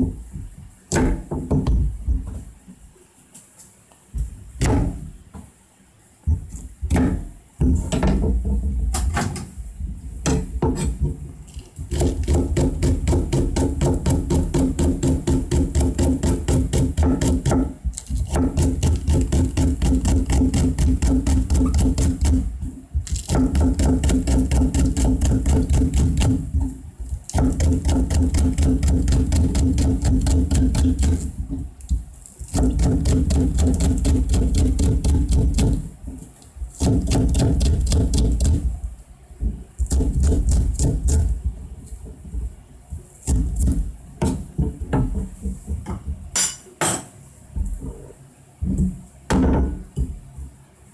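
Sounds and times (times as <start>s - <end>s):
knife chopping on cutting board: 11.9s - 22.4s, 27.3s - 31.3s, 32.5s - 35.8s.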